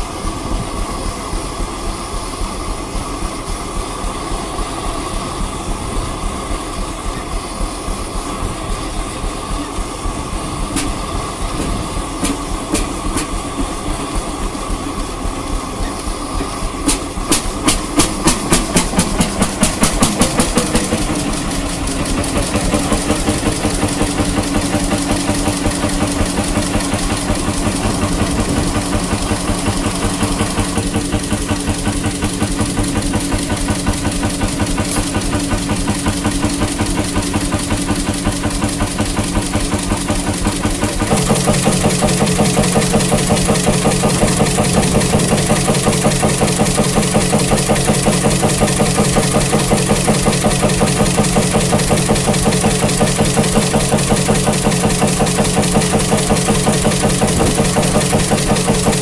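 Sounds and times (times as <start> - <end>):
engine running with steady beat: 0.0 - 59.0.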